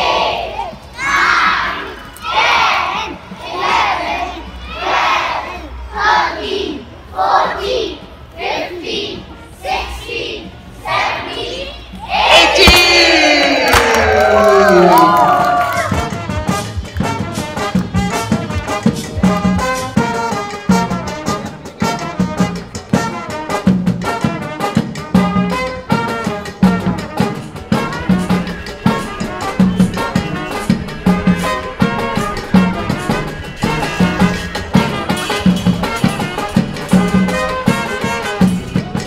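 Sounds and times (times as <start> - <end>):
upbeat brass music: 12.1 - 39.0.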